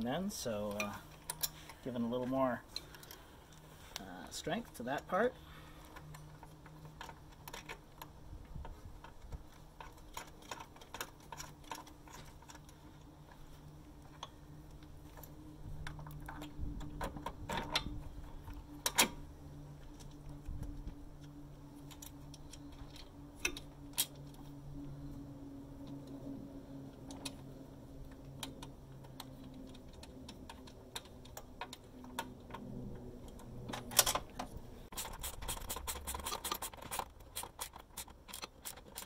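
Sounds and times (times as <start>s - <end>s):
steady low hum: 0.0s - 39.0s
ratchet metal clicks: 34.9s - 39.0s.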